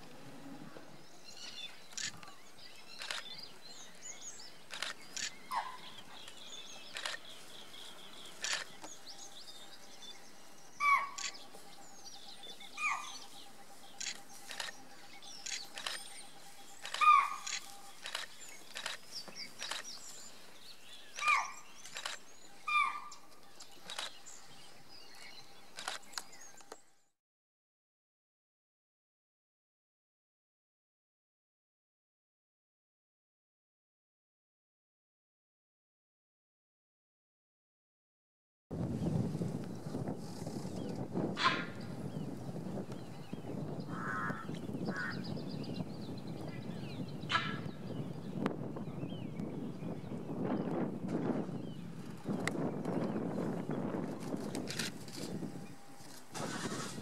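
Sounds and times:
wild birds chirping: 0:00.0 - 0:27.1, 0:38.9 - 0:57.0.

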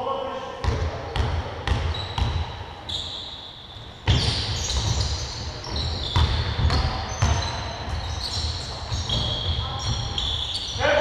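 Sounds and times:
sneaker squeaks: 0:00.6 - 0:11.0
basketball bouncing on hardwood: 0:04.0 - 0:08.1.

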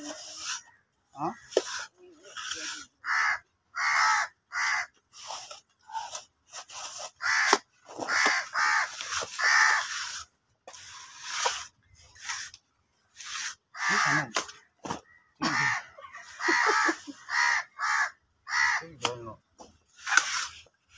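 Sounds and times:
crows cawing: 0:02.8 - 0:05.0, 0:07.2 - 0:10.2, 0:13.7 - 0:19.1.

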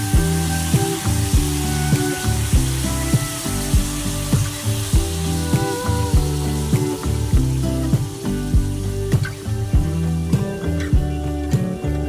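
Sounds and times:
background music with steady beat: 0:00.0 - 0:12.0
spinach sizzling in frying pan: 0:00.0 - 0:12.0.

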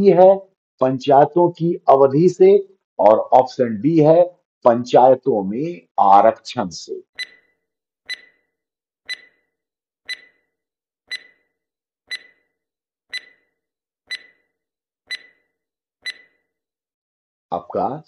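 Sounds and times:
stopwatch ticking: 0:07.2 - 0:07.5, 0:08.1 - 0:08.5, 0:09.1 - 0:09.5, 0:10.1 - 0:10.5, 0:11.1 - 0:11.5, 0:12.1 - 0:12.5, 0:13.1 - 0:14.5, 0:15.1 - 0:16.4.

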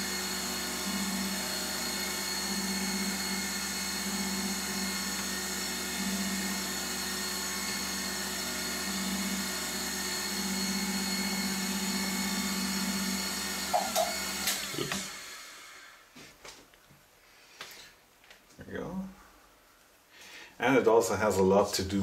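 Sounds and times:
motor winding down: 0:00.0 - 0:15.9
grinder whine: 0:00.0 - 0:16.0.

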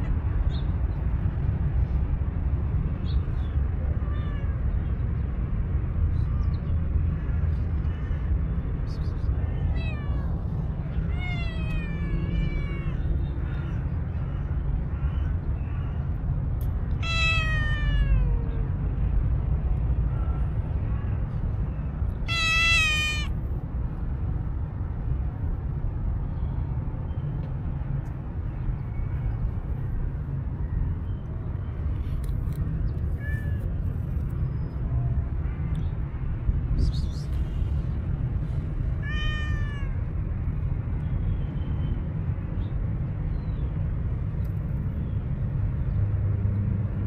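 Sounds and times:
steady low rumble: 0:00.0 - 0:41.2
cats meowing: 0:03.9 - 0:04.7, 0:09.4 - 0:13.4, 0:16.9 - 0:18.7, 0:22.2 - 0:23.4, 0:38.9 - 0:40.1.

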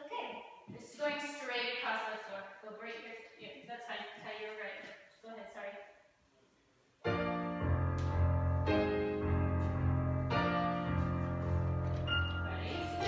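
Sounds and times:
piano playing sustained chords: 0:07.1 - 0:13.0.

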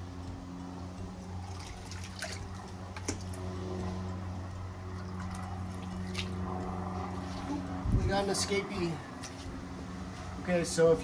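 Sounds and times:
low hum: 0:00.0 - 0:10.6
water splashing in bucket: 0:01.4 - 0:03.4.

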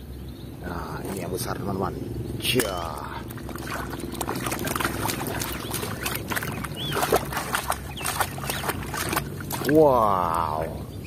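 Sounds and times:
steady low hum: 0:00.0 - 0:11.0
water splashing and sloshing: 0:02.4 - 0:10.8.

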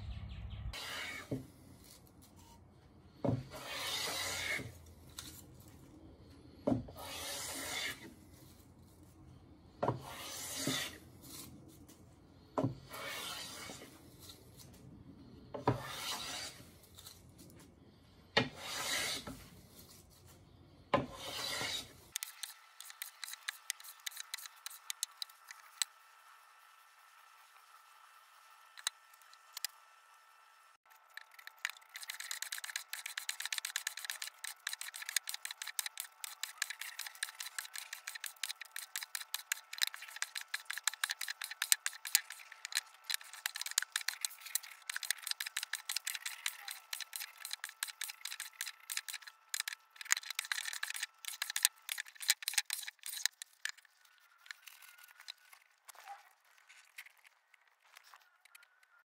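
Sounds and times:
hand plane scraping wood: 0:03.5 - 0:04.7, 0:07.0 - 0:08.1, 0:10.0 - 0:11.0, 0:12.9 - 0:13.8, 0:15.8 - 0:16.6, 0:18.5 - 0:19.4, 0:21.1 - 0:25.0, 0:31.6 - 0:53.8.

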